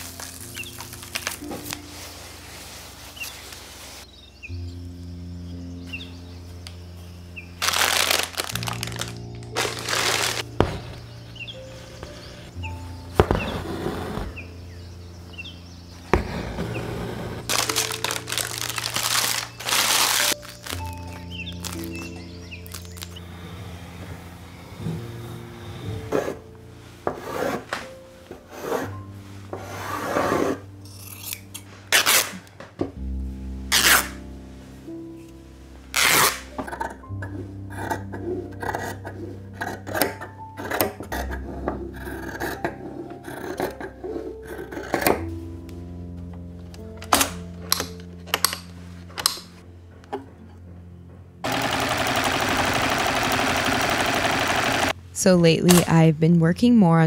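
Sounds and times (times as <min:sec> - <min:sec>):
cloth rustling and swishing: 0:00.4 - 0:04.1
sewing machine stitching fast: 0:51.4 - 0:55.0.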